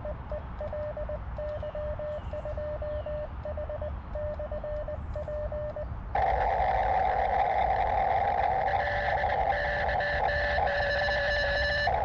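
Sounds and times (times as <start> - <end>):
morse code beeps: 0.0 - 6.3, 8.5 - 12.0.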